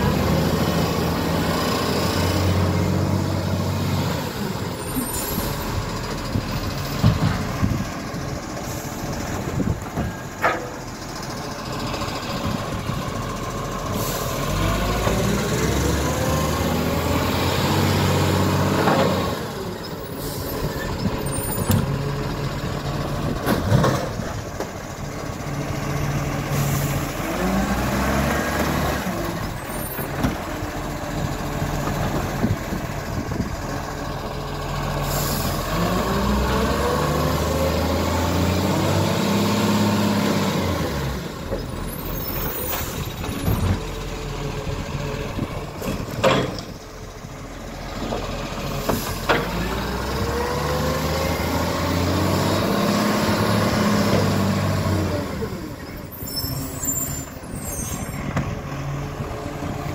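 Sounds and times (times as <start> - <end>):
garbage truck engine revving: 0.0 - 10.1, 11.1 - 59.9
air brake hisses: 35.0 - 35.6.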